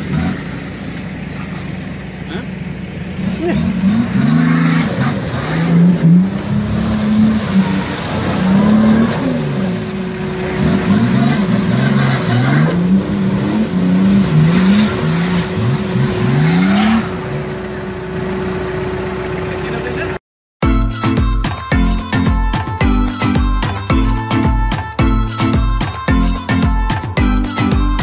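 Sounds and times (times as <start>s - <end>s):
engine revving hard: 3.1s - 17.6s.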